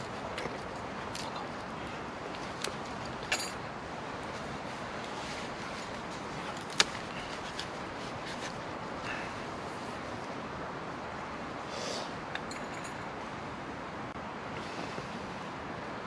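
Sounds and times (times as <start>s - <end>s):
outdoor background hiss: 0.0s - 16.0s
metallic clink: 3.2s - 3.6s, 12.3s - 13.1s.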